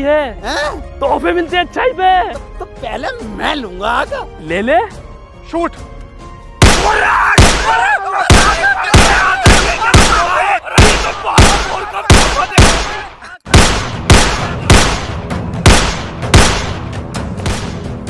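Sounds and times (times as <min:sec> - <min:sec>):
gunshots: 0:06.6 - 0:16.9
men yelling: 0:06.8 - 0:13.4.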